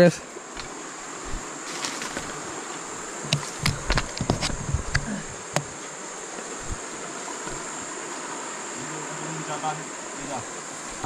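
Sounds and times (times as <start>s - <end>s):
insects buzzing: 0.0s - 11.0s
sharp clicks and knocks: 3.2s - 5.7s.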